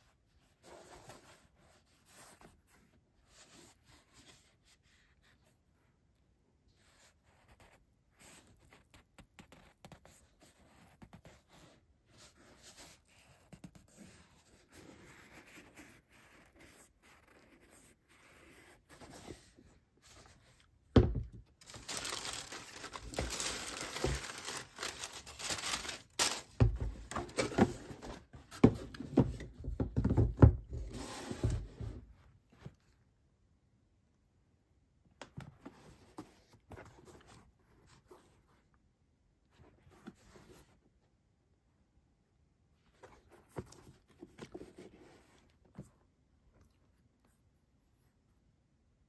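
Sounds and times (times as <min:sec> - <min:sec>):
dull thumps of box and shoes: 0:20.9 - 0:32.1
tissue paper rustling and crinkling: 0:21.5 - 0:28.3.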